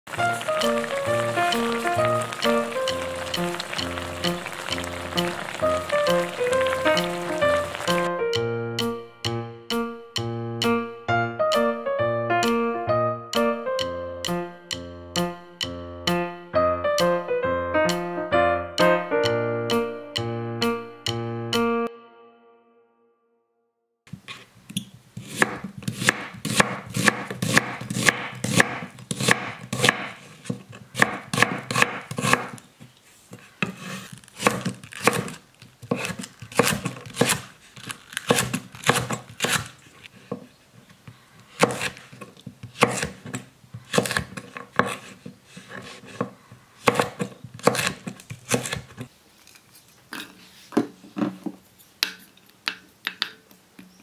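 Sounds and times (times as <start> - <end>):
knife chopping on wooden board: 25.2 - 32.6, 33.6 - 37.5, 38.2 - 39.8, 41.5 - 49.1.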